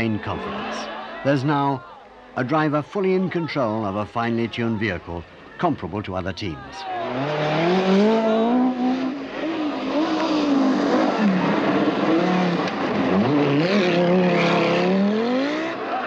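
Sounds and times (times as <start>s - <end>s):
rally car engines at full throttle: 6.9s - 16.0s.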